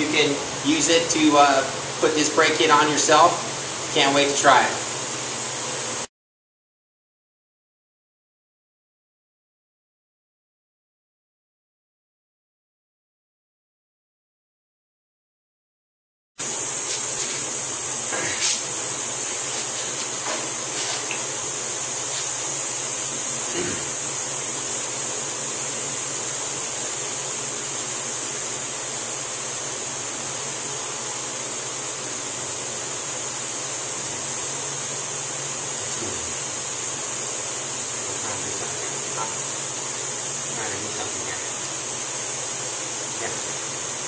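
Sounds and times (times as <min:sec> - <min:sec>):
high-pitched hiss: 0:16.4 - 0:28.6, 0:33.6 - 0:44.0.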